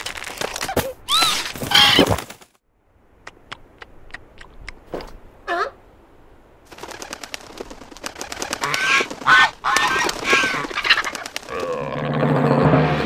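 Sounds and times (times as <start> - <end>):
rapid wing flapping: 6.7 - 12.1
cartoon seagull squawking: 8.6 - 11.2.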